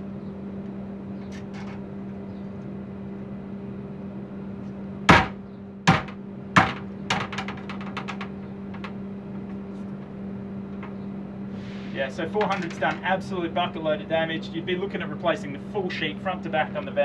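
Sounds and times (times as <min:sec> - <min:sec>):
steady low hum: 0:00.0 - 0:17.0
sledgehammer hitting metal sheet: 0:05.1 - 0:07.3.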